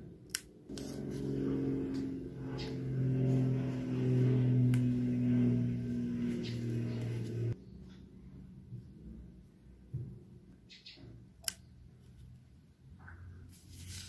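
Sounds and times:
scissors snipping tape: 0:00.2 - 0:01.1
vehicle engine humming: 0:00.7 - 0:07.6.

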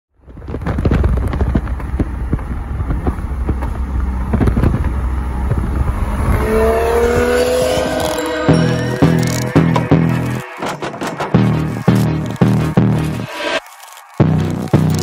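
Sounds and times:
exhaust crackling and popping: 0:00.1 - 0:15.0
car engine running hard: 0:00.4 - 0:13.3.

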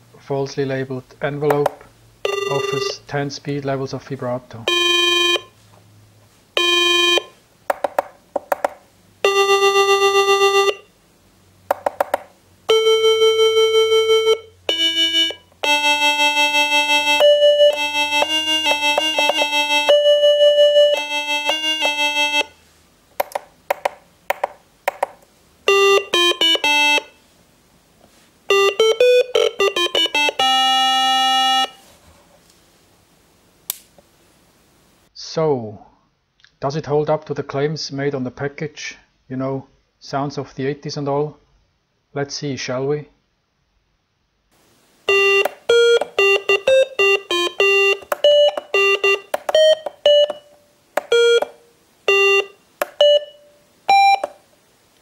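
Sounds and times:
square-wave synthesizer beeps: 0:02.3 - 0:03.0, 0:04.7 - 0:05.5, 0:06.6 - 0:07.3, 0:09.3 - 0:10.9, 0:12.7 - 0:22.5, 0:25.7 - 0:27.1, 0:28.5 - 0:31.8, 0:45.1 - 0:54.3.

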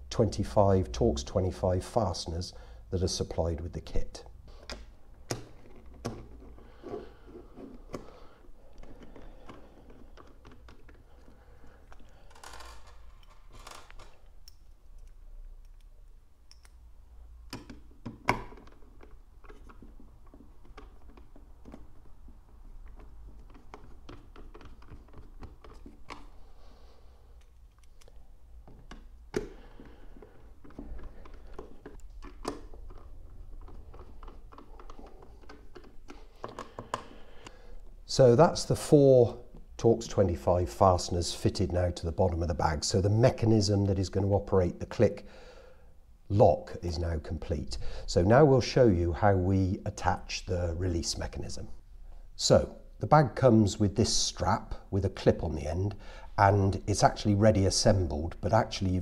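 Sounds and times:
screwdriver clicks and creaks: 0:08.7 - 0:26.3, 0:27.4 - 0:29.5, 0:30.3 - 0:37.6.

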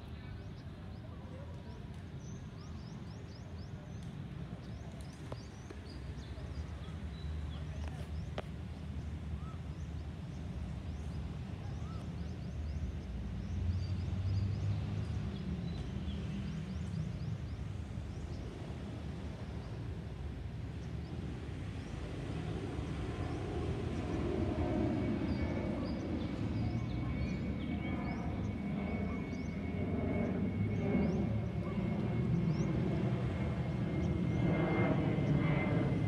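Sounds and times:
faint jet engine whine: 0:00.0 - 0:36.0
jet flying over rumble: 0:00.0 - 0:36.0.

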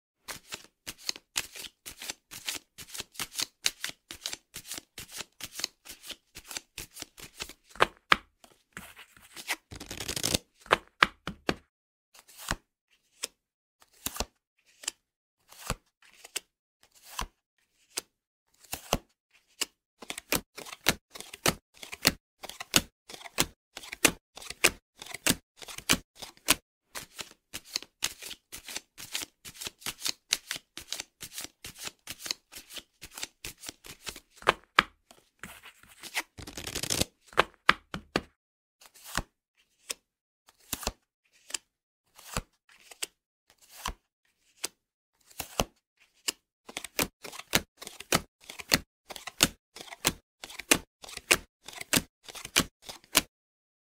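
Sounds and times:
cards rustling: 0:00.3 - 0:10.9, 0:35.4 - 0:38.2
playing cards clicking and snapping: 0:09.4 - 0:11.6, 0:19.6 - 0:34.9, 0:36.0 - 0:38.3.

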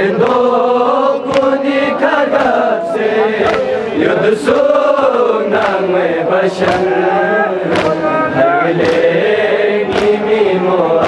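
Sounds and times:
men chanting in unison: 0:00.0 - 0:11.0
chest-beating slaps: 0:01.2 - 0:02.6, 0:03.4 - 0:03.8, 0:05.5 - 0:05.9, 0:06.6 - 0:07.0, 0:07.7 - 0:08.1, 0:08.8 - 0:09.2, 0:09.9 - 0:10.3.

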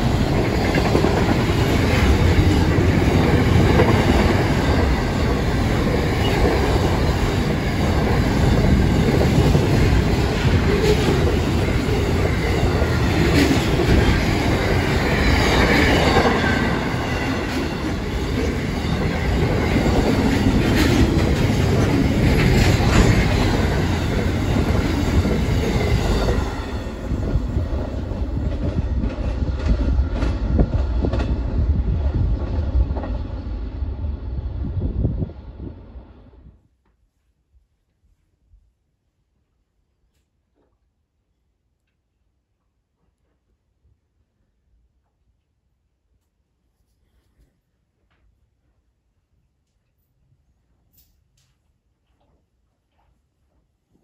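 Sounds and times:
wheels clattering over rails: 0:00.0 - 0:31.4
freight train rumbling past: 0:00.0 - 0:36.6.

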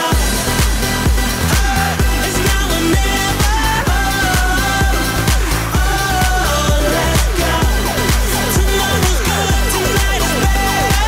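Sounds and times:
music with heavy bass beat: 0:00.0 - 0:11.0.

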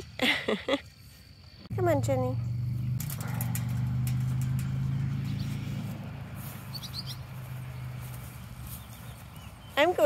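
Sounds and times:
vehicle engine humming: 0:01.7 - 0:10.0
bird chirping: 0:04.4 - 0:10.0.

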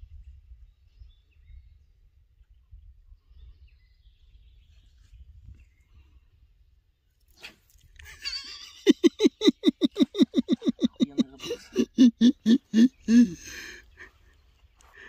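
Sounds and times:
person laughing hard: 0:08.2 - 0:14.2.

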